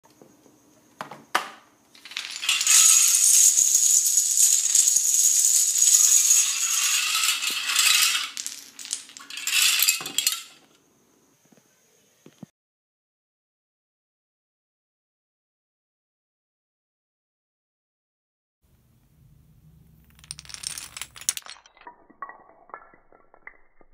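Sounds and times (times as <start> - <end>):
dominoes clattering on tiles: 2.0 - 10.6, 19.9 - 23.9.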